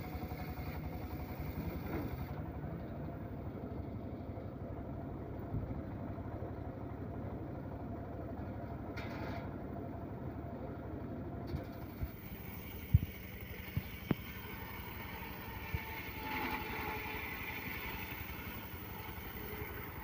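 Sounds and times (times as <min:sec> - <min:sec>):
saw blade spinning free: 0:12.2 - 0:20.0.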